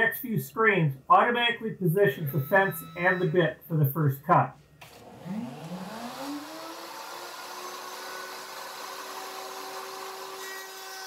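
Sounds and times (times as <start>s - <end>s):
router motor whine: 4.8s - 11.0s.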